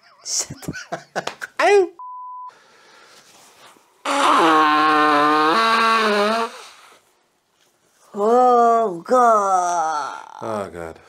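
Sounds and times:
person blowing nose: 3.6s - 7.0s.

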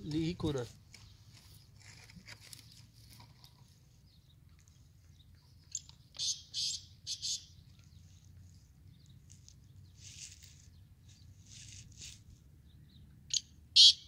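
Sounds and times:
francolin harsh scratchy call: 13.8s - 14.0s.

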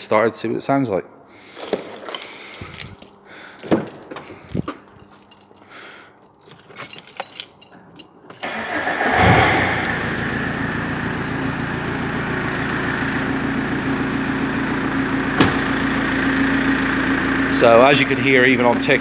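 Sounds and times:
keys jingling: 1.4s - 8.8s, 9.5s - 10.1s
diesel engine starting and idling: 8.4s - 19.0s.

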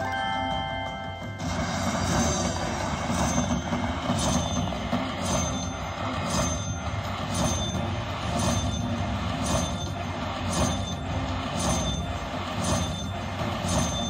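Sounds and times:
short high ding: 0.0s - 6.8s
slot machine win rollup: 0.0s - 14.0s.

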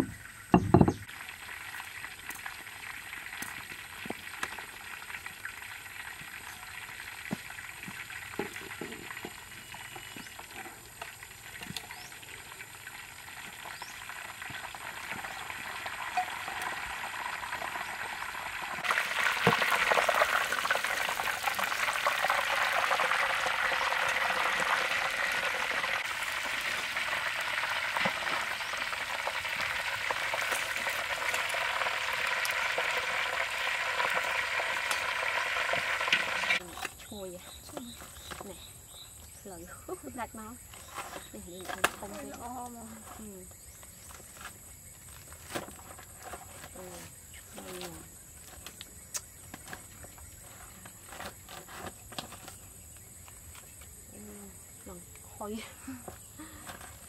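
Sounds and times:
oil sizzling and bubbling: 0.0s - 39.3s.

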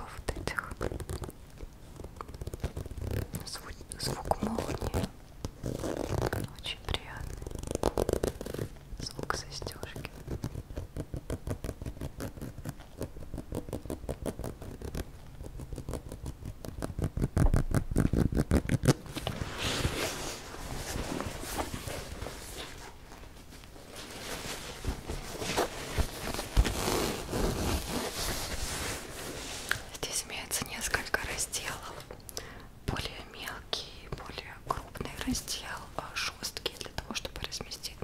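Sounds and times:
fingernails scratching fabric bag: 4.3s - 6.5s, 7.3s - 8.8s, 9.9s - 23.0s, 23.9s - 29.7s
bag fabric rustling: 4.4s - 6.4s, 10.0s - 29.9s.

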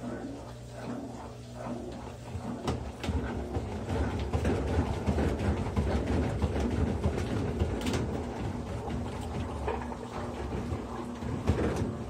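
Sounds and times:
washing machine drum spinning: 0.0s - 12.0s
knocking and clatter: 2.6s - 12.0s.

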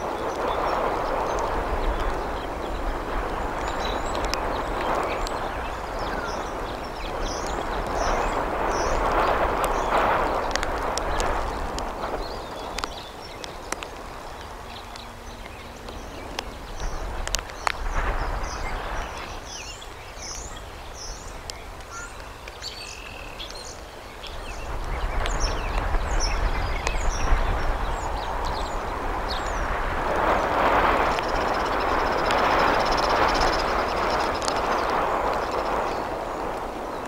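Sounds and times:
wind rumble on microphone: 0.0s - 37.0s
rustling hiss in nest: 28.5s - 37.0s.

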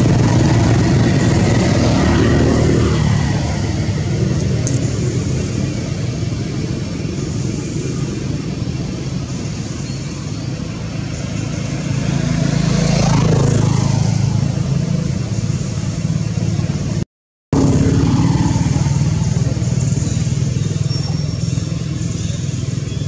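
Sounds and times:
vehicle engine running: 0.0s - 23.0s.

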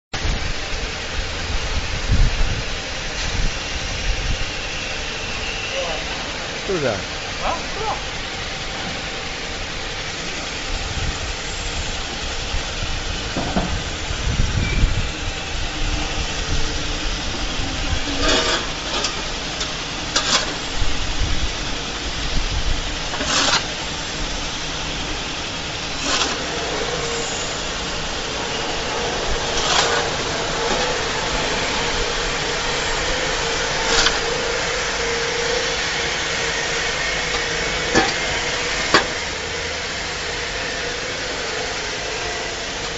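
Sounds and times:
steady mechanical drone: 0.2s - 42.9s
shovel scraping concrete floor: 18.1s - 20.8s, 23.1s - 24.0s, 25.9s - 39.2s.

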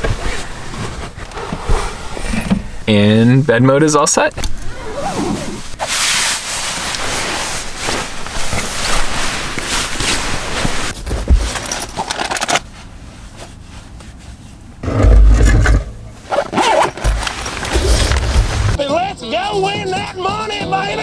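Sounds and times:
fabric rustling and scraping: 0.0s - 2.6s, 4.8s - 18.8s
handling small fabric bag: 16.2s - 18.8s.

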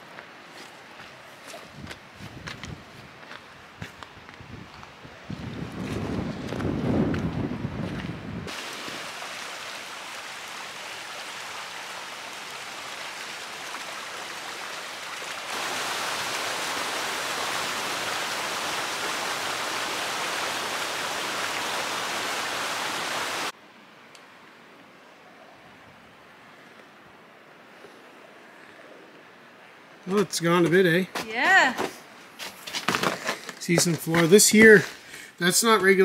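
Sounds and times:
stream water rushing: 8.5s - 27.7s.

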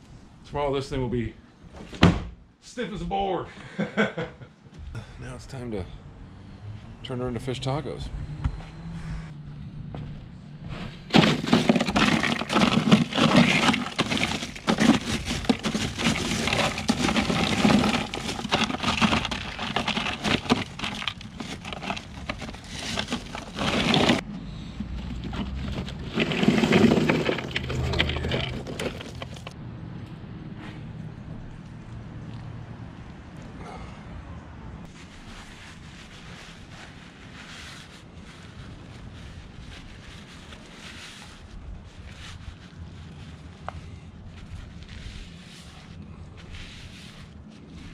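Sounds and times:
crushed ice crunching and clinking: 11.1s - 24.2s, 25.1s - 29.6s.

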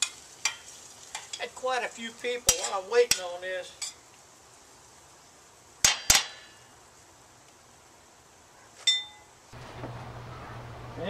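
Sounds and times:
spoon clanging on skillet: 0.0s - 1.5s, 2.4s - 4.0s.

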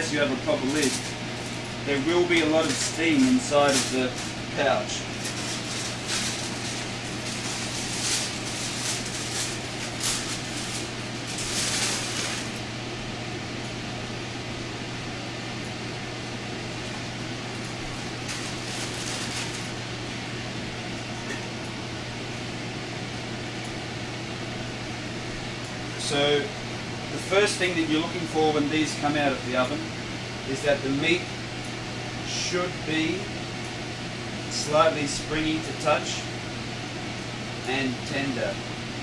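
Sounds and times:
steady background hum: 0.0s - 39.0s
foil and paper crinkling: 0.1s - 12.6s, 17.9s - 19.8s.

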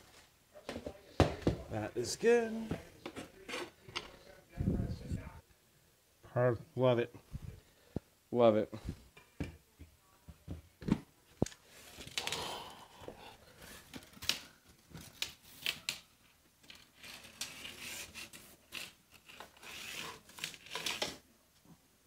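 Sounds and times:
scraping and rubbing on floor: 16.7s - 21.2s.

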